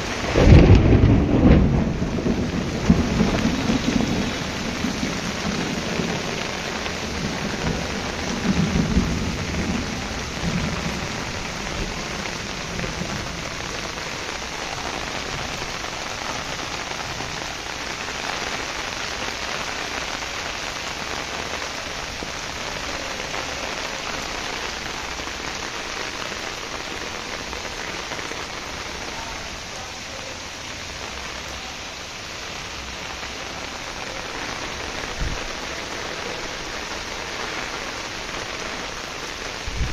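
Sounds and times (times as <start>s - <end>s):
heavy rain pouring: 0.0s - 39.9s
low rumble of thunder: 0.1s - 17.6s, 39.6s - 39.9s.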